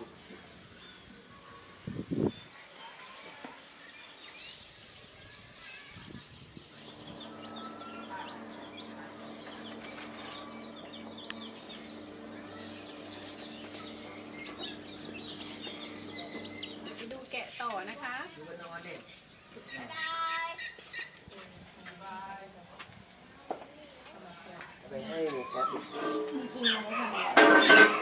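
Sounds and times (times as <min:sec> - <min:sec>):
chicks peeping: 0:05.9 - 0:21.4, 0:24.1 - 0:27.3
steady low hum: 0:06.6 - 0:17.1.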